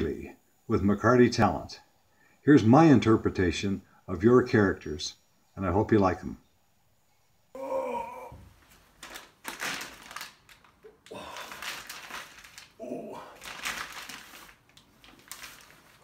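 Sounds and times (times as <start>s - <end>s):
noisy breathing: 1.8s - 2.5s
man groaning: 7.5s - 8.5s, 11.0s - 11.6s, 12.8s - 13.4s
rustling: 8.5s - 12.8s, 13.4s - 16.0s.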